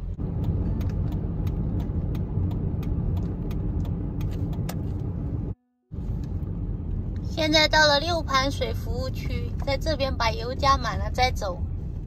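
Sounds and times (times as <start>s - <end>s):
tyre and engine rumble: 0.0s - 12.0s
sharp repeating tick: 0.2s - 5.1s.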